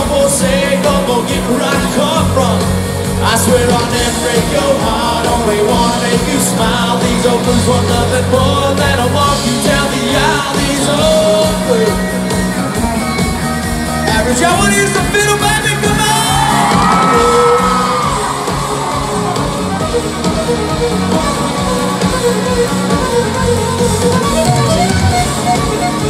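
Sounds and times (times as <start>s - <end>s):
person singing: 0.0s - 13.2s
live country band playing: 0.0s - 26.0s.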